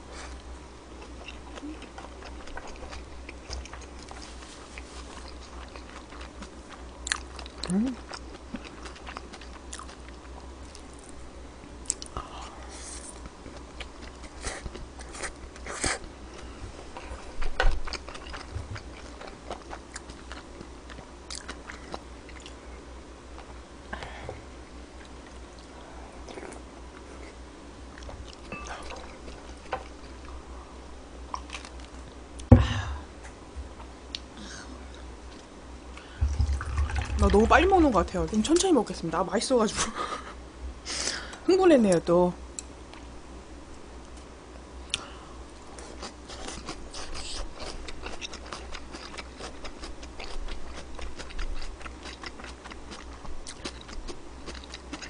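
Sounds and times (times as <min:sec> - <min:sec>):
person chewing: 0:01.0 - 0:11.1, 0:13.0 - 0:22.6, 0:25.0 - 0:30.4, 0:31.3 - 0:32.5, 0:44.8 - 0:55.0
loud thump: 0:32.5 - 0:33.0, 0:36.2 - 0:37.0.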